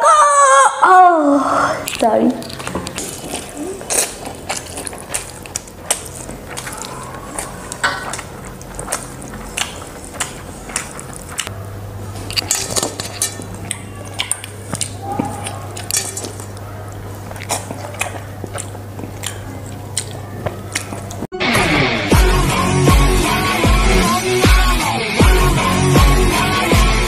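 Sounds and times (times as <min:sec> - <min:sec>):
steady low hum: 0:00.1 - 0:27.0
chewing and slurping noodles: 0:01.6 - 0:11.5, 0:12.2 - 0:21.3.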